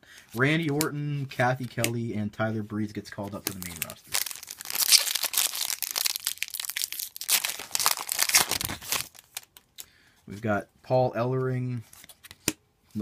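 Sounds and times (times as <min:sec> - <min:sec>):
foil wrapper tearing and crinkling: 0:03.5 - 0:09.6.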